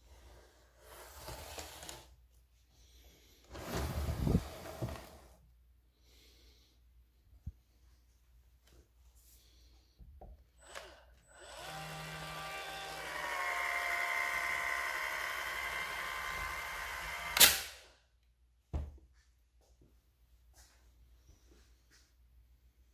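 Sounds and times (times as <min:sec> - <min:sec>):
caulk gun motor whining: 0:10.6 - 0:17.7
sharp click: 0:17.4 - 0:17.7.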